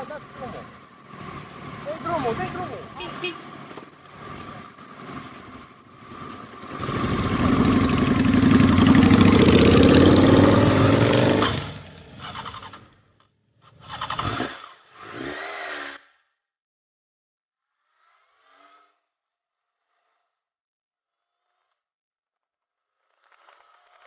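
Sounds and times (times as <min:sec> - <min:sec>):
motorcycle engine accelerating: 0:00.0 - 0:13.0, 0:13.6 - 0:16.0.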